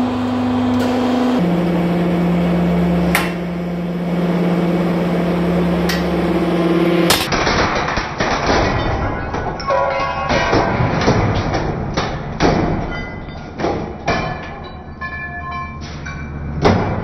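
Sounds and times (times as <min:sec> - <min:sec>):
electric pump motor humming: 0:00.0 - 0:07.3
sharp cracks of metal: 0:03.1 - 0:03.5, 0:07.0 - 0:17.0.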